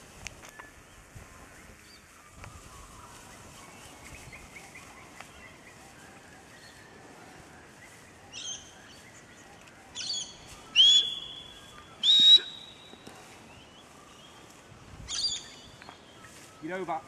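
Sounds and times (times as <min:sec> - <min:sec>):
faint bird chirps: 0:01.4 - 0:17.0
short shrill whistles: 0:10.7 - 0:13.0.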